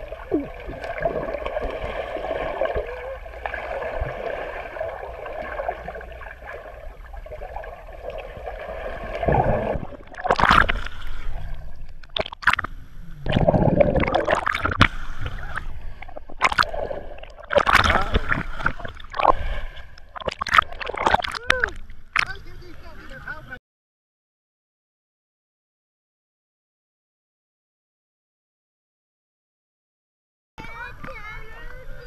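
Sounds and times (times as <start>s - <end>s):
water splashing and gurgling: 0.0s - 22.9s
muffled underwater wash: 0.0s - 23.6s.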